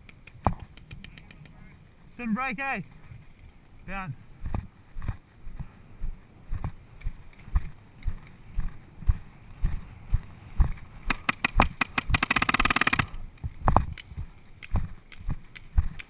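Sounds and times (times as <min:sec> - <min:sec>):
paintball marker firing: 0:11.1 - 0:13.9.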